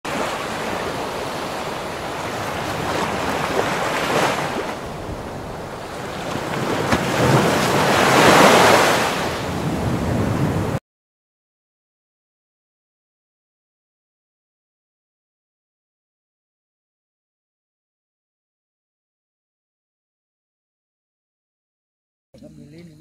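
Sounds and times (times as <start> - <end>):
ocean waves washing in: 0.1 - 10.8.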